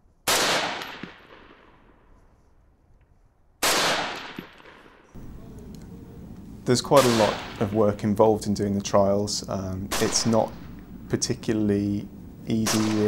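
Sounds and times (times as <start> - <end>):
rifle shots with echo: 0.2 - 2.0, 3.6 - 5.4, 6.9 - 8.2, 9.9 - 11.0, 12.6 - 13.0.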